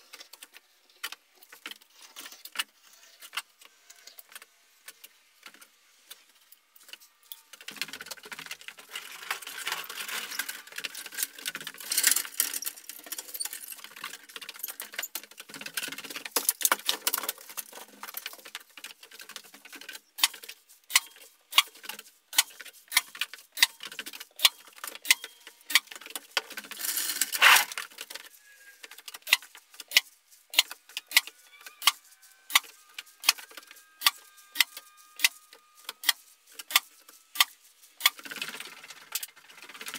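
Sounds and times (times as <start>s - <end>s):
rough scraping and rustling: 8.7s - 14.1s, 26.6s - 38.7s.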